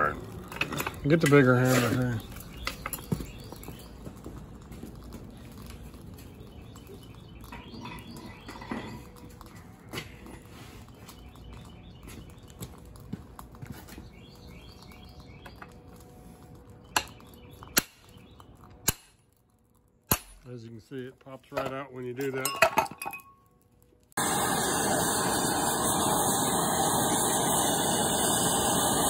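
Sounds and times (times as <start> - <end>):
faint chirps: 5.3 - 12.8.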